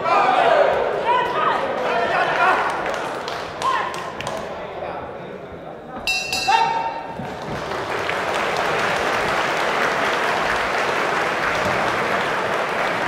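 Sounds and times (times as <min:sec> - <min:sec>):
crowd applauding: 0:01.7 - 0:04.4, 0:07.1 - 0:13.0
boxing ring bell: 0:06.1 - 0:07.0.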